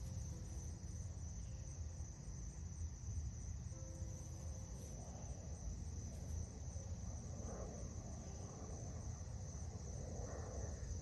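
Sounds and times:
insects trilling: 0:00.0 - 0:11.0.

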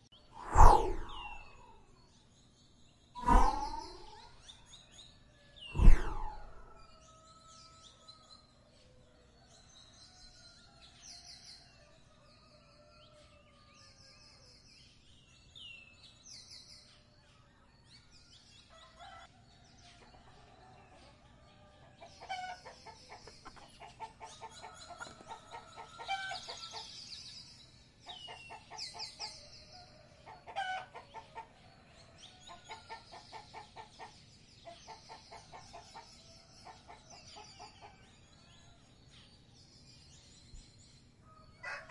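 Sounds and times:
small birds chirping: 0:00.0 - 0:41.9.

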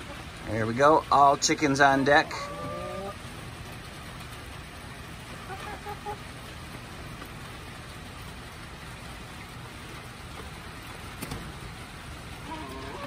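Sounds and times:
rain hissing: 0:00.0 - 0:13.0
hens clucking: 0:01.2 - 0:03.2, 0:05.4 - 0:06.6, 0:12.4 - 0:13.0.

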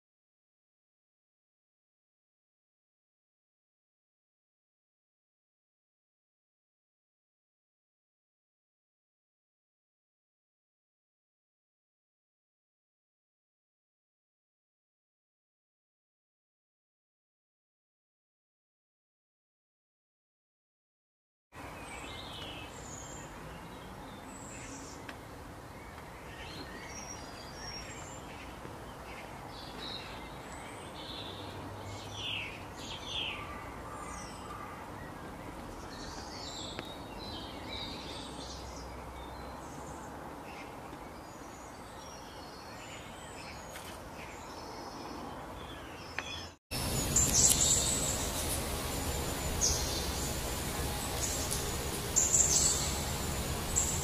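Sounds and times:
birds chirping and trilling: 0:21.6 - 0:54.0.

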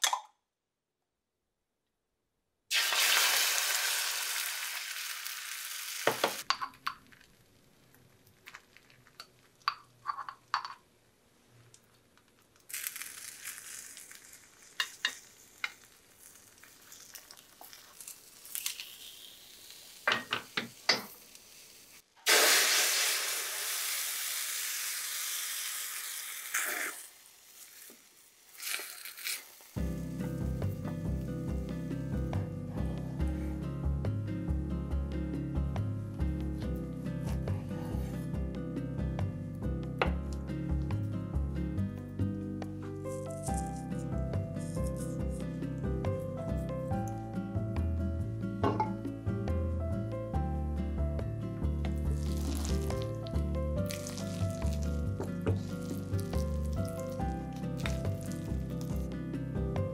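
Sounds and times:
egg sizzling in a pan: 0:02.7 - 0:09.7, 0:12.6 - 0:32.2, 0:52.0 - 0:59.1.

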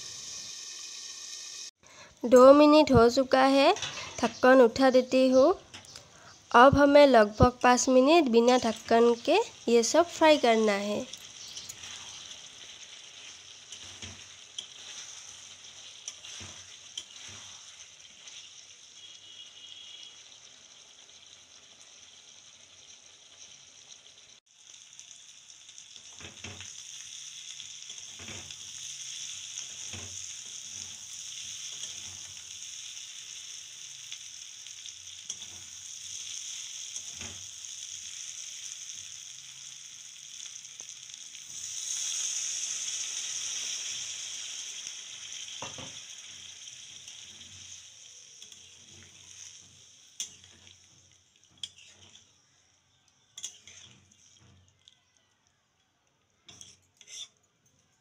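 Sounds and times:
food sizzling in oil: 0:00.0 - 0:55.6, 0:56.4 - 0:57.5
metal spatula scraping pan: 0:03.7 - 0:04.4, 0:11.2 - 0:20.1, 0:51.6 - 0:52.3, 0:53.4 - 0:54.6, 0:56.5 - 0:57.4.

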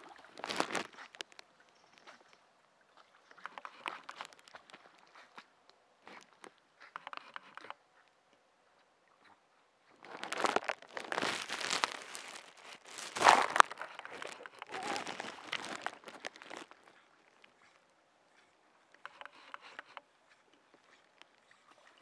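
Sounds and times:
leaves and twigs rustling: 0:00.0 - 0:02.4, 0:03.3 - 0:05.1, 0:10.0 - 0:17.5.

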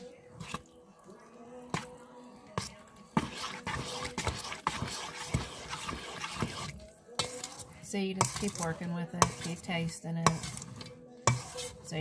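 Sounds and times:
spoon stirring wet stuffing: 0:00.0 - 0:12.0
spoon knocking metal bowl: 0:08.2 - 0:10.6, 0:11.3 - 0:11.6.

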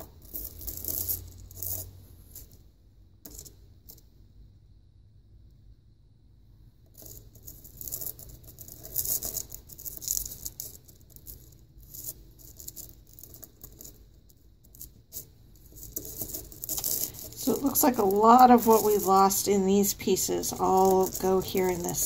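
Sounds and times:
stone pieces clicking and scraping: 0:15.8 - 0:22.0.

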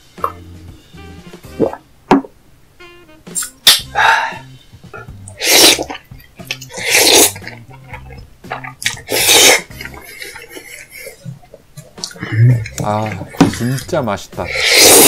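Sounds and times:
loud noodle slurps: 0:05.3 - 0:07.6, 0:08.8 - 0:09.9, 0:14.5 - 0:15.0.

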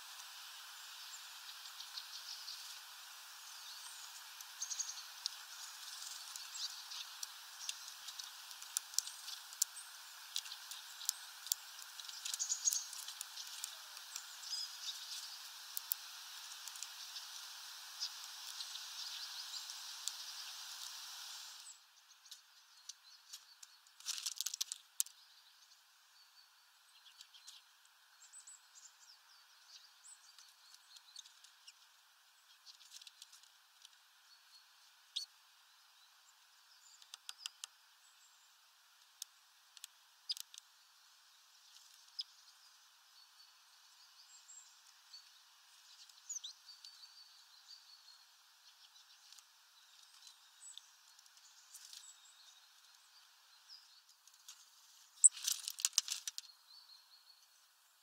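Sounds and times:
birds pecking at seeds: 0:00.0 - 0:25.2, 0:27.0 - 0:27.9, 0:32.5 - 0:34.1, 0:36.8 - 0:38.2, 0:39.0 - 0:40.8, 0:48.7 - 0:53.2, 0:54.1 - 0:56.5
small birds chirping: 0:00.0 - 0:58.0
steady background hiss: 0:00.0 - 0:58.0
brief rustle: 0:54.3 - 0:56.5.

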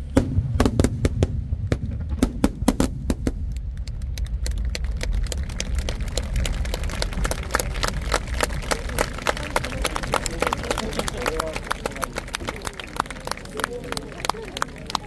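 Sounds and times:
fireworks bangs and pops: 0:00.0 - 0:10.4
low rumble: 0:00.0 - 0:10.8
fireworks crackling: 0:00.0 - 0:15.0.

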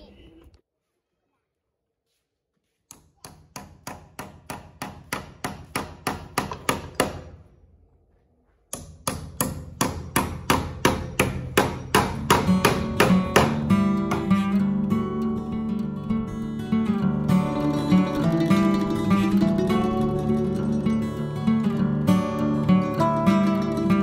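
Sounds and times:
hammer driving nails into wood: 0:02.9 - 0:07.5, 0:08.7 - 0:14.4
acoustic guitar music: 0:11.8 - 0:24.0.

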